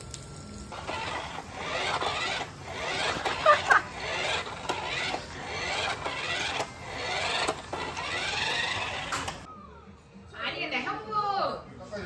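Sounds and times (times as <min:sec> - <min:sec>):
toy car wheels whirring: 0:00.7 - 0:09.5.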